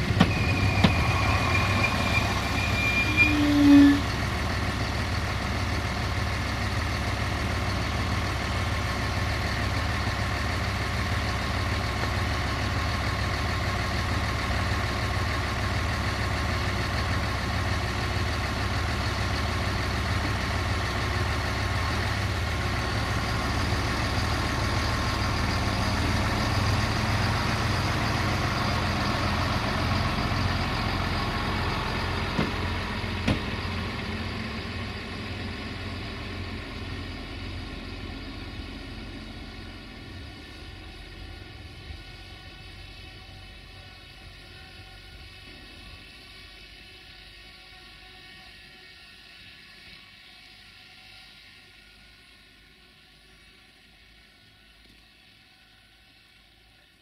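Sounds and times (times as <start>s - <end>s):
faint rising tone: 0.0s - 4.3s
diesel train engine hum: 0.0s - 57.0s.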